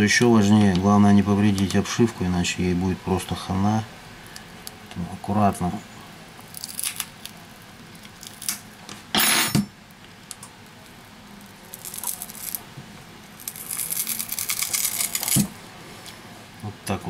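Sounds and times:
adhesive crackling: 0:06.4 - 0:08.7, 0:10.2 - 0:12.6, 0:13.3 - 0:15.4.

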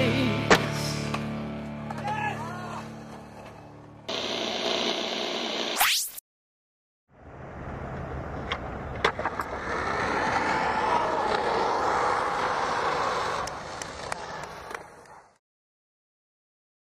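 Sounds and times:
skateboard wheels rolling: 0:01.8 - 0:05.7, 0:07.2 - 0:15.4.

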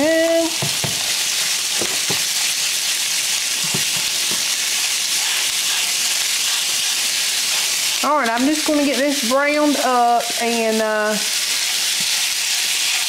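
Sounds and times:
sausage sizzling in a frying pan: 0:00.0 - 0:13.0
utensil scraping pan: 0:03.6 - 0:08.0.

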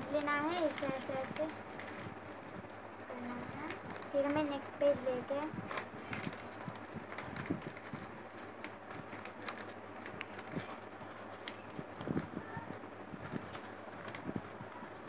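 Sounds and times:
newspaper crumpling: 0:00.6 - 0:02.2, 0:03.1 - 0:04.4, 0:05.4 - 0:12.6, 0:13.2 - 0:15.0.

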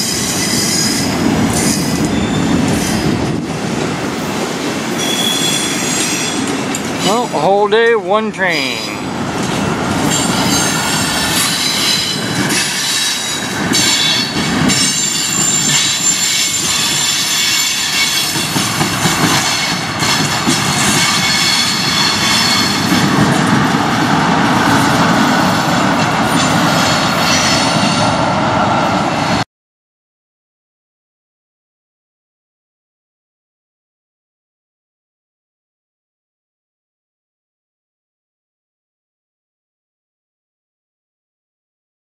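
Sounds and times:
train wheels squealing: 0:00.0 - 0:03.2, 0:05.0 - 0:06.5, 0:10.0 - 0:23.1, 0:26.4 - 0:28.1
train rumble and clatter: 0:00.0 - 0:29.4.

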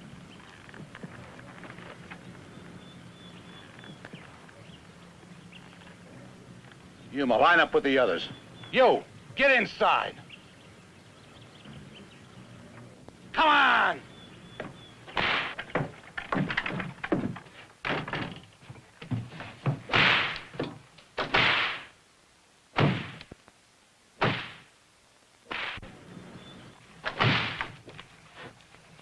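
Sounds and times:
heavy thuds and bangs: 0:14.6 - 0:18.4, 0:22.8 - 0:23.2, 0:24.2 - 0:24.7, 0:27.0 - 0:27.8.

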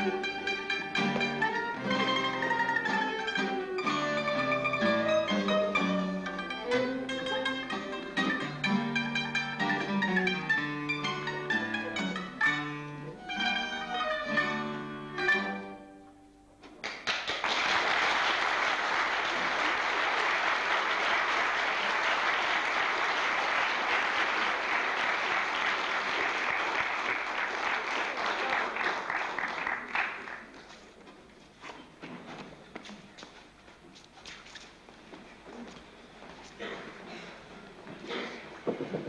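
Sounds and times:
string music: 0:00.0 - 0:16.6
audience applause: 0:16.8 - 0:30.6.

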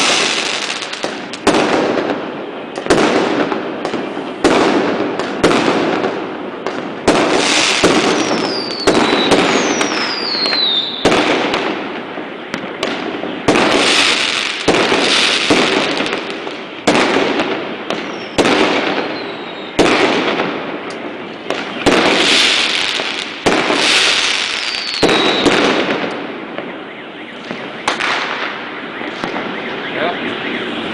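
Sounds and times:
falling firework whistles: 0:00.0 - 0:01.6, 0:07.1 - 0:20.3, 0:20.9 - 0:30.9
fireworks bangs: 0:00.0 - 0:30.9.

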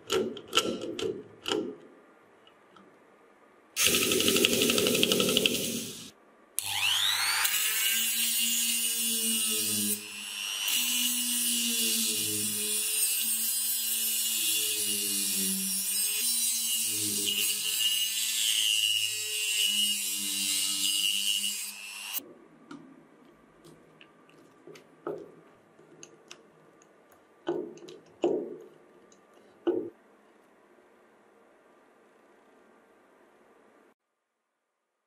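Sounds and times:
knocks and creaks of screwdriver: 0:23.6 - 0:26.5, 0:27.5 - 0:28.8, 0:29.6 - 0:30.0.

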